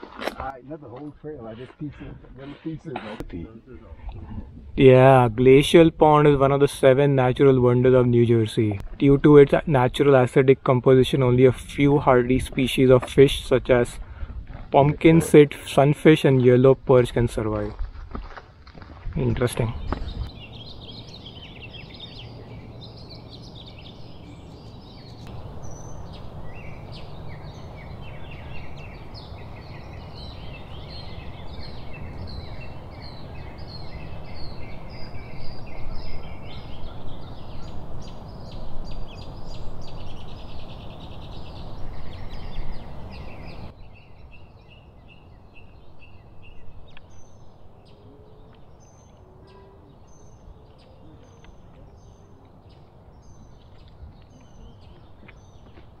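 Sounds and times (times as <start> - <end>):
wind rumble on microphone: 3.2 - 6.4, 11.5 - 15.3, 16.8 - 49.0
small birds chirping: 19.1 - 56.0.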